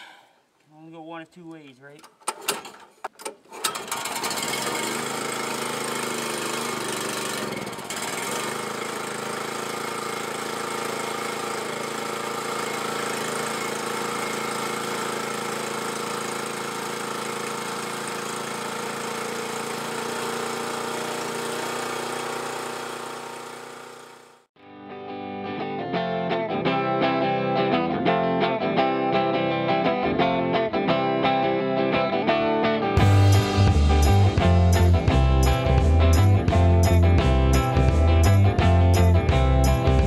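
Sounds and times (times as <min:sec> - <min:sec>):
generator engine starting and running: 0:02.0 - 0:24.6, 0:33.0 - 0:40.0.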